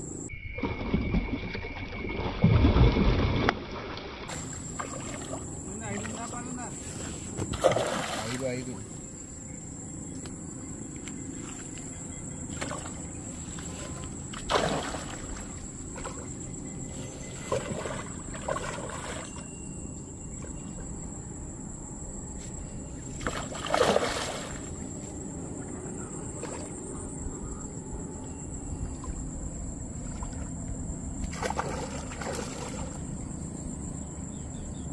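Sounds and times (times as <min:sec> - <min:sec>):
fish splashing in water: 0:00.6 - 0:06.4, 0:07.5 - 0:08.4, 0:12.5 - 0:16.4, 0:17.3 - 0:19.5, 0:23.2 - 0:24.9, 0:31.2 - 0:33.1.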